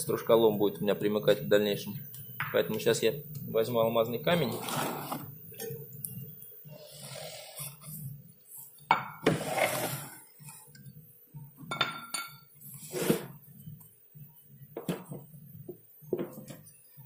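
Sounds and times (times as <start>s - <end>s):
stone scraping: 4.4s - 5.4s.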